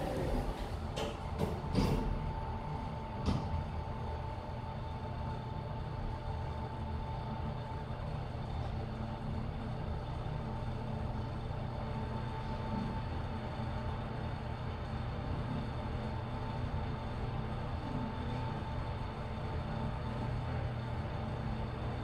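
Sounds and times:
elevator door clunks: 0.0s - 2.4s
elevator low rumble: 0.0s - 22.0s
thin steady whine: 0.0s - 22.0s.

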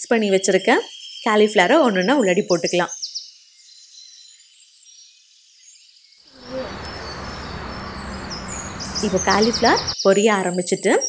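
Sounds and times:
birds chirping: 6.4s - 10.0s
insects chirping: 6.4s - 10.0s.

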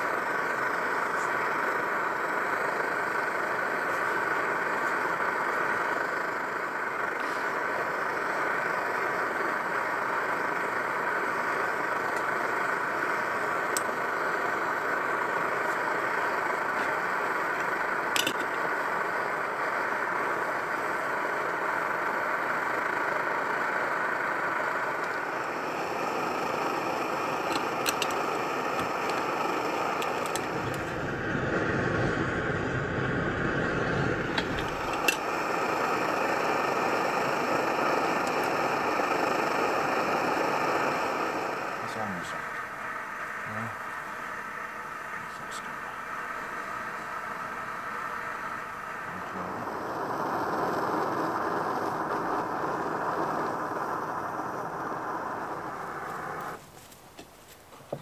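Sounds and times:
camping stove burning: 0.0s - 58.0s
deep rumble: 30.4s - 36.3s.

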